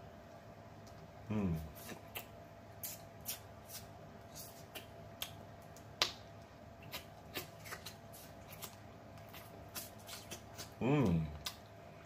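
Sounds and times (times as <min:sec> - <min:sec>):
wet mouth smacks and clicks: 0:01.8 - 0:03.8, 0:04.4 - 0:06.2.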